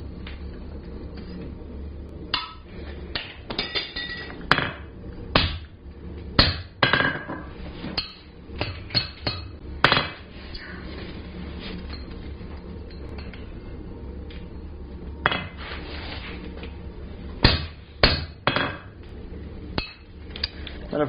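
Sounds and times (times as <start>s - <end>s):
hammer striking metal punch: 6.4s - 7.4s, 17.4s - 18.9s.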